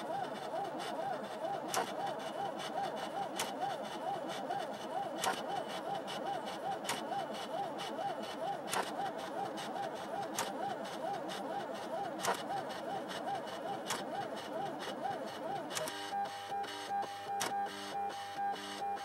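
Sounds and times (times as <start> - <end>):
cutting machine motors whining: 0.0 - 19.0
sharp machine clicks: 12.2 - 12.5, 15.6 - 16.0.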